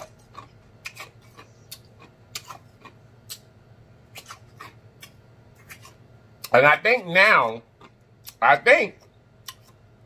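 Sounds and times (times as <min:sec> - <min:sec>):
chewing clicks: 0:00.0 - 0:03.5, 0:07.8 - 0:08.4, 0:09.4 - 0:09.8.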